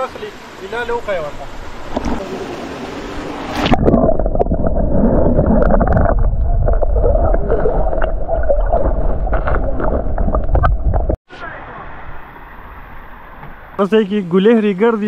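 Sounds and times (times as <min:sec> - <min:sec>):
muffled underwater rumble and gurgling: 0:03.6 - 0:11.2.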